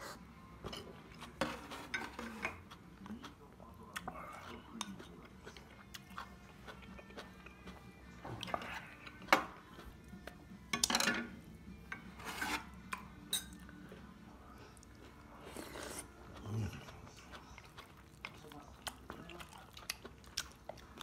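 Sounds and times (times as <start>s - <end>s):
metal spoon clinking on ceramic bowls: 10.7s - 11.3s, 13.2s - 13.6s.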